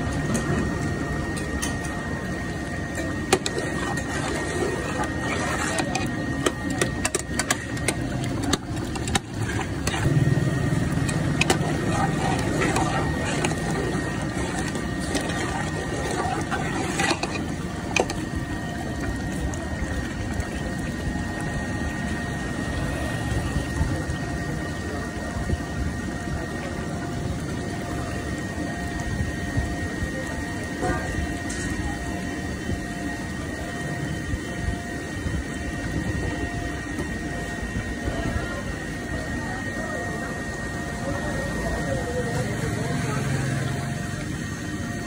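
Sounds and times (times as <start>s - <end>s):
gas burner rushing: 0.0s - 18.4s.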